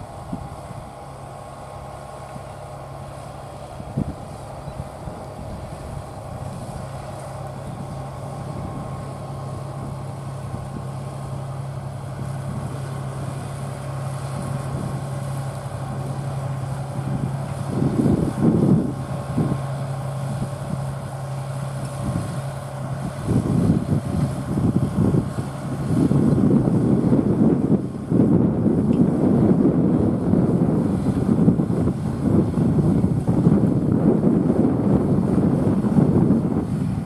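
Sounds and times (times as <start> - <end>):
tractor diesel engine under load: 0.0 - 37.0
wind buffeting microphone: 0.0 - 37.0.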